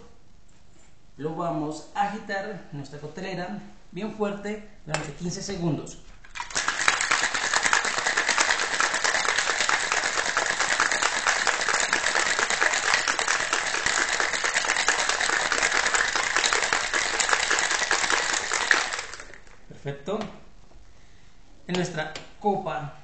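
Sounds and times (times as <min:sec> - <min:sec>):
ice rattling in metal cocktail shaker: 0:06.3 - 0:19.6.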